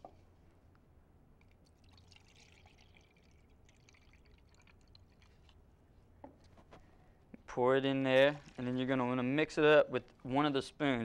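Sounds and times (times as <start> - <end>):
water pouring into cup: 1.4 - 5.6, 8.1 - 9.0.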